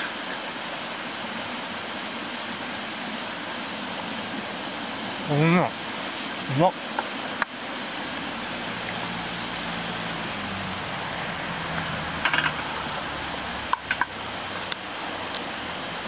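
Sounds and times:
stream flowing over rocks: 0.0 - 16.0.

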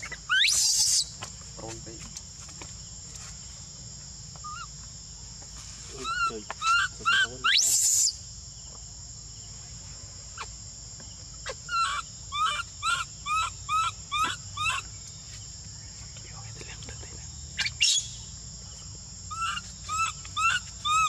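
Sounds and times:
baby monkey coo calls: 0.0 - 1.2, 4.4 - 4.9, 6.0 - 8.2, 10.3 - 10.6, 11.4 - 15.0, 17.6 - 18.3, 19.3 - 21.0
insects buzzing: 0.0 - 21.0.

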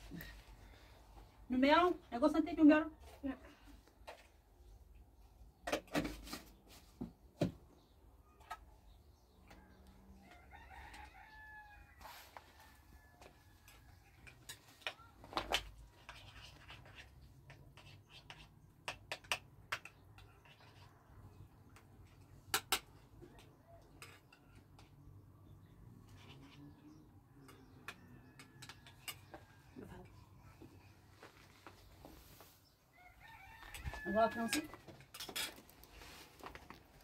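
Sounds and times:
rooster crowing faintly: 9.5 - 14.3, 32.9 - 34.9.

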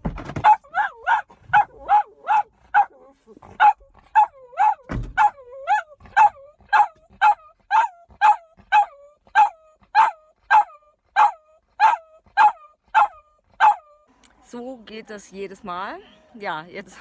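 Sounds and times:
dog barking and whining: 0.3 - 14.1.

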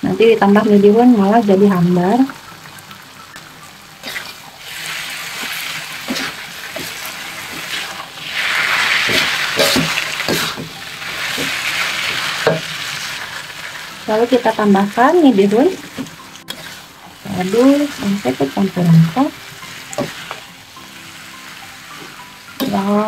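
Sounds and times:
vegetables sizzling in a wok: 0.3 - 23.0
metal spatula scraping: 4.0 - 13.9, 16.4 - 18.5.

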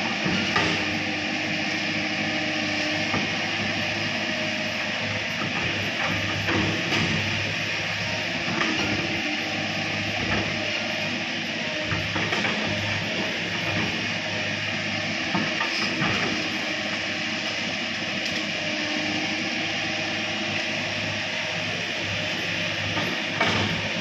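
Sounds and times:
excavator diesel engine running: 0.0 - 24.0.

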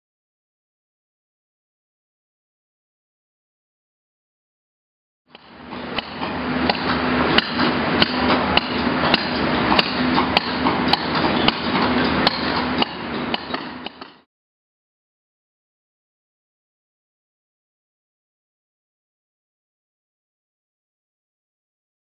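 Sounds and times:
mallets striking caulking irons: 5.3 - 14.3.

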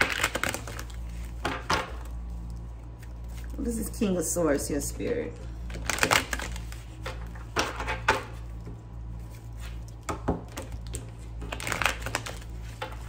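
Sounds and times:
cards shuffling: 0.0 - 1.9, 5.7 - 8.4, 10.6 - 13.0
low electrical hum: 0.0 - 13.0.

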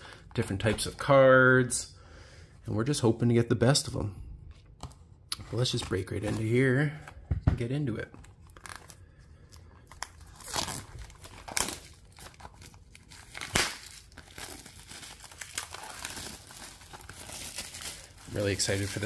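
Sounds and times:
plastic shrink-wrap tearing and crinkling: 8.4 - 19.0.

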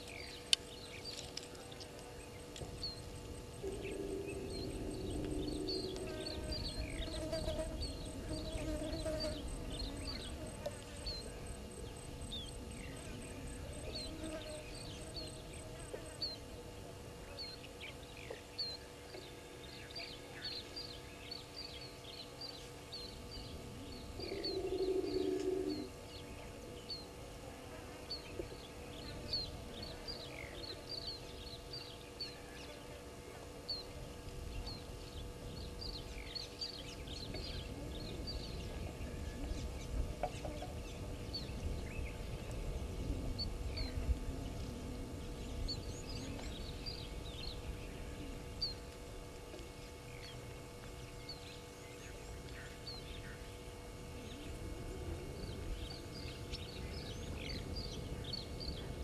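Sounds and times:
small birds chirping: 0.0 - 27.4, 28.0 - 59.0
low rumbling noise: 0.0 - 59.0
low animal call: 3.6 - 11.2, 23.9 - 26.0.

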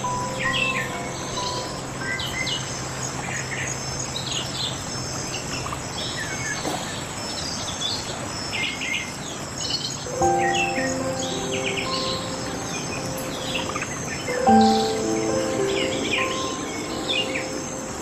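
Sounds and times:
low held music tone: 0.0 - 5.5, 10.1 - 18.0
birds chirping and trilling: 0.0 - 18.0
forest ambience hiss: 0.0 - 18.0.

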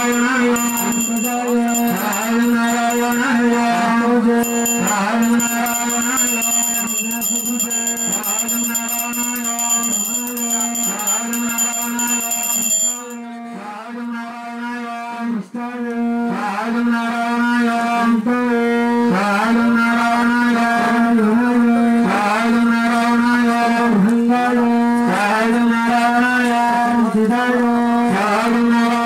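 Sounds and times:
thin high ringing tone: 0.0 - 13.2
devotional chanting: 0.0 - 29.0.

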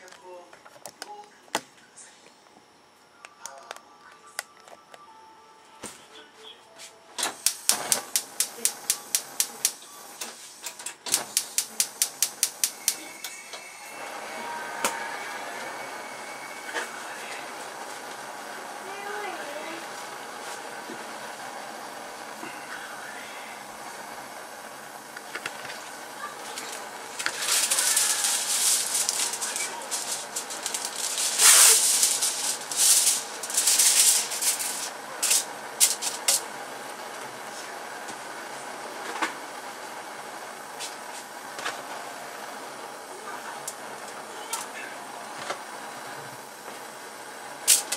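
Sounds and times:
stove igniter clicking: 7.2 - 9.8, 10.7 - 13.1
gas flame hissing: 7.2 - 47.9
aluminium foil crinkling: 25.3 - 36.5, 47.6 - 47.9
foil crackles: 25.4 - 36.5.

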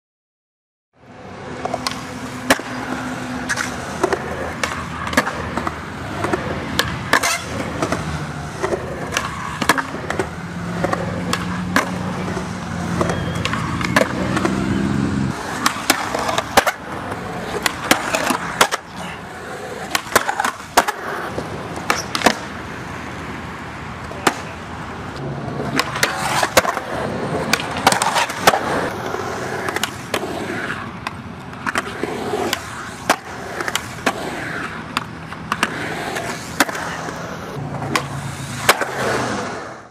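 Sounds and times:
skateboard wheels rolling on concrete: 1.0 - 39.9
skateboard grinding on concrete ledge: 1.5 - 23.2, 25.3 - 30.9, 31.6 - 39.9
skateboard clacks: 1.5 - 39.9.

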